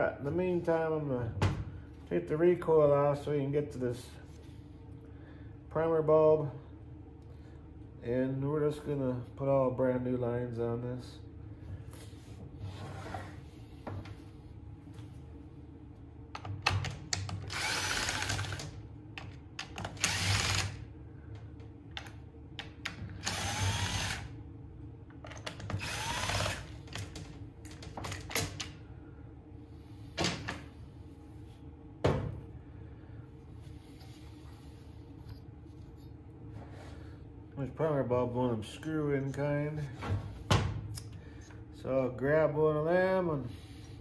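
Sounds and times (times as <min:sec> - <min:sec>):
cordless drill spinning out screws: 0:17.5 - 0:18.7, 0:19.9 - 0:20.8, 0:23.2 - 0:24.3, 0:25.7 - 0:26.7.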